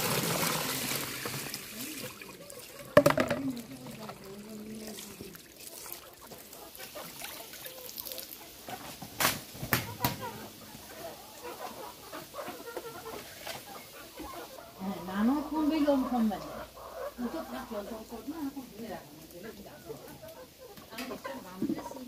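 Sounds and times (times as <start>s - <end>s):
running water from a hose: 0.0s - 14.6s
hens clucking: 0.0s - 22.0s.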